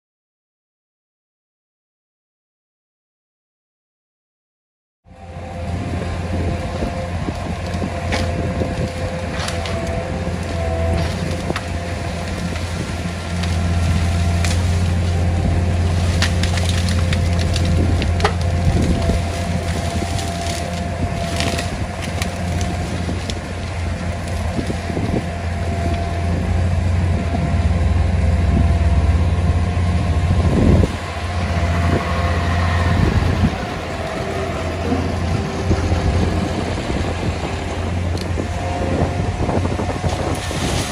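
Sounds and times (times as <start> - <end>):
garbage truck engine: 5.1 - 40.9
loader engine running: 5.1 - 40.9
wood cracking and snapping: 6.7 - 26.4.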